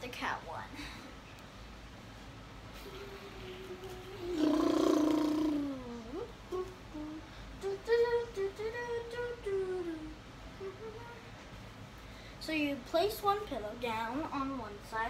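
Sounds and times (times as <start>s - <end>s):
girl humming: 2.7s - 11.3s.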